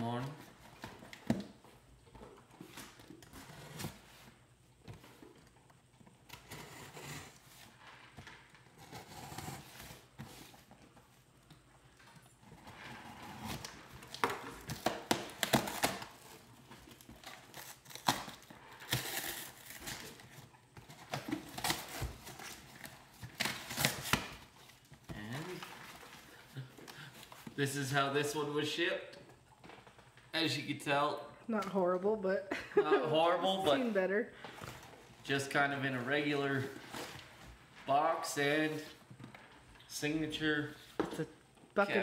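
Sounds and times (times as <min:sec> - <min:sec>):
tape and cardboard ripping: 0:12.5 - 0:26.0.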